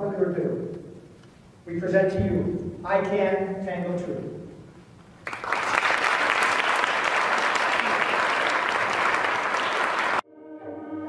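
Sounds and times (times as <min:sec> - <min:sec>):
audience applauding: 0:05.2 - 0:10.2.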